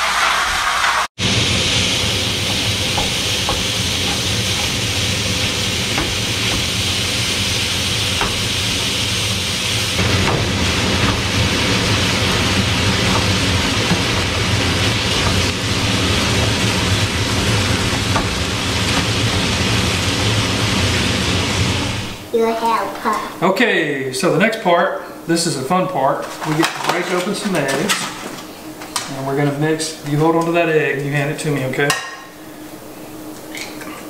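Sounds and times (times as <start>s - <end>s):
sausage sizzling in a skillet: 0.0s - 22.3s
spatula tapping a pan: 2.5s - 4.8s, 5.4s - 6.8s, 8.1s - 8.5s.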